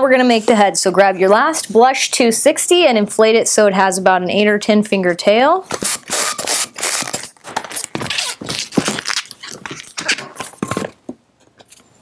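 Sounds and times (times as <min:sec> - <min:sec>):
balloon squeaking and rubbing: 0:05.7 - 0:10.6.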